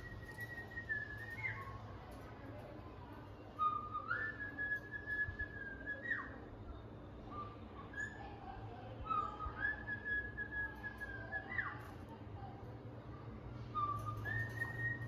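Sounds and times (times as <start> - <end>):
cockatiel whistling: 0.0 - 1.8, 3.6 - 6.4, 9.1 - 11.8.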